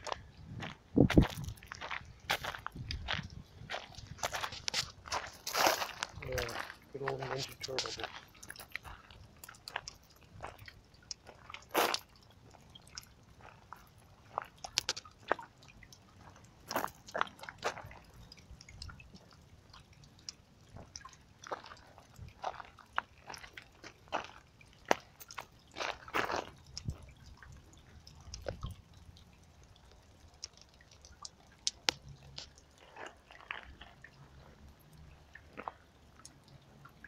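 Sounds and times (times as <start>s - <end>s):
footsteps crunching on gravel: 0.0s - 9.1s.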